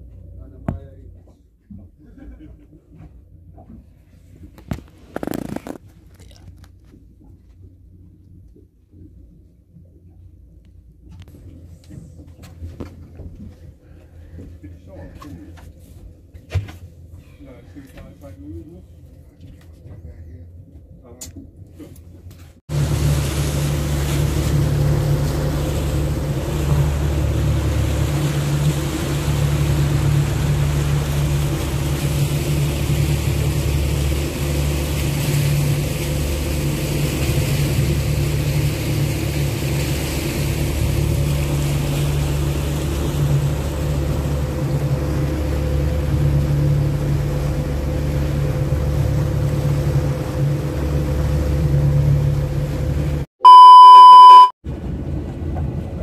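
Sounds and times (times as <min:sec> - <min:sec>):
motorboat engine droning: 0:22.7 - 0:56.0
rush of wind and water: 0:22.7 - 0:56.0.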